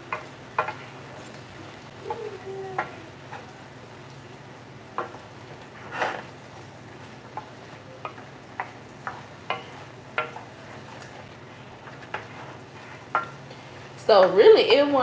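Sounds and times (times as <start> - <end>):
food sizzling in a skillet: 0.0 - 15.0
wooden spoon scraping a pan: 5.0 - 14.0.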